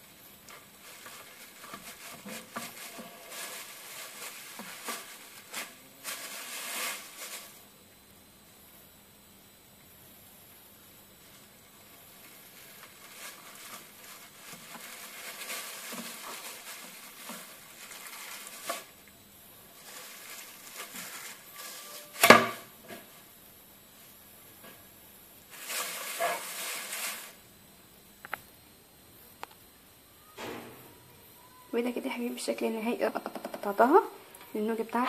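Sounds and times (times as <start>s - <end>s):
plastic wrap crinkling: 0.4s - 7.6s, 12.0s - 22.5s, 25.5s - 27.4s
sharp knock: 30.4s - 30.9s.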